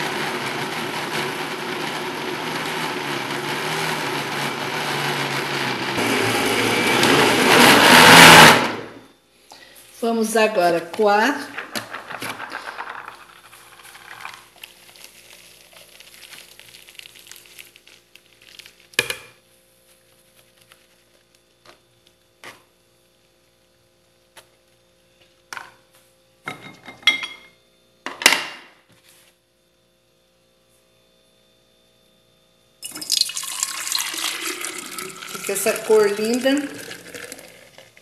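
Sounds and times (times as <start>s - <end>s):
juice draining through sieve: 11.6s - 19.0s, 32.8s - 38.0s
juice pouring into glass jar: 11.7s - 18.9s, 32.8s - 38.0s.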